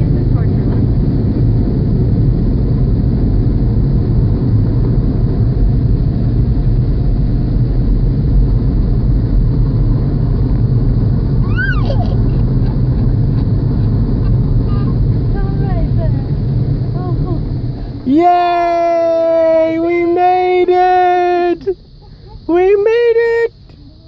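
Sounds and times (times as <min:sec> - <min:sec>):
toddler wailing: 0:11.4 - 0:12.4.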